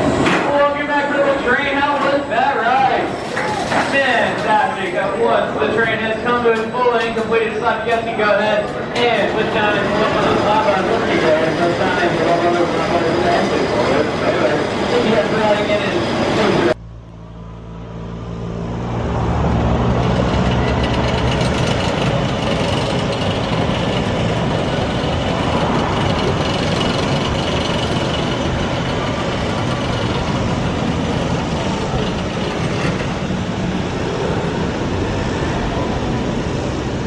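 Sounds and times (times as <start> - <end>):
roller coaster rumble and rattle: 0.0 - 17.2, 18.6 - 37.0
outdoor noise: 0.0 - 37.0
low engine hum: 8.8 - 37.0.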